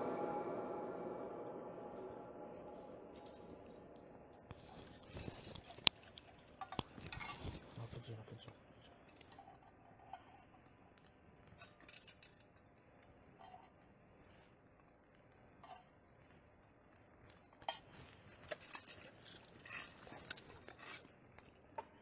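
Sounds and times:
clinks of small hard objects: 0:03.1 - 0:03.8, 0:04.4 - 0:09.4, 0:11.6 - 0:13.8, 0:14.4 - 0:21.8.

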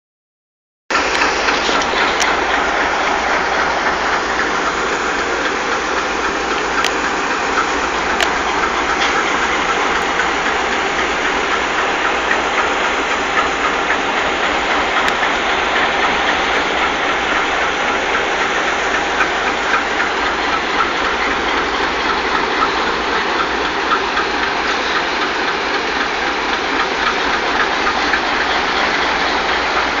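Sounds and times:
diesel locomotives idling: 0:00.9 - 0:30.0.

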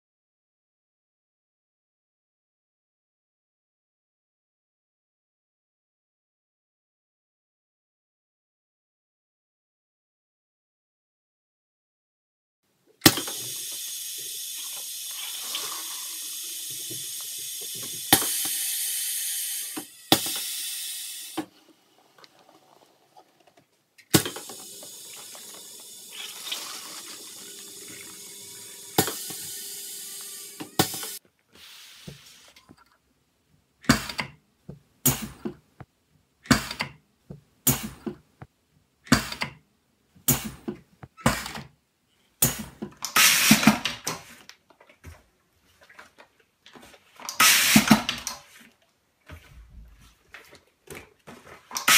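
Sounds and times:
filling machine hissing and clicking: 0:13.0 - 0:21.5, 0:24.1 - 0:32.6, 0:42.4 - 0:43.9, 0:47.3 - 0:48.4.

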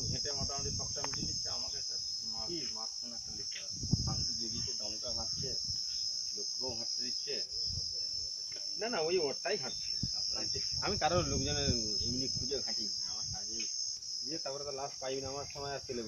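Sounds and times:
people talking: 0:00.0 - 0:05.6, 0:06.4 - 0:13.7, 0:14.3 - 0:16.0
insect chorus droning: 0:00.0 - 0:16.0.

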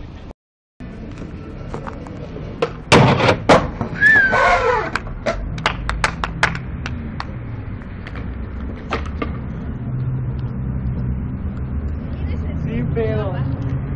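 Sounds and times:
steady low rumble: 0:05.0 - 0:13.9.

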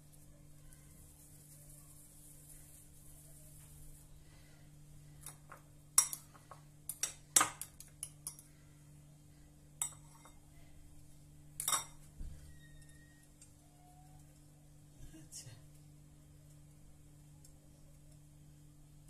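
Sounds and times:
metal fork clinking against bowl: 0:09.8 - 0:10.4.

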